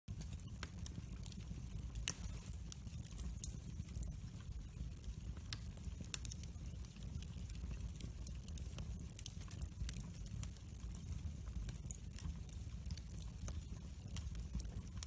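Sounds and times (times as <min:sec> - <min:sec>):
wood fire crackling and popping: 0:00.1 - 0:15.0.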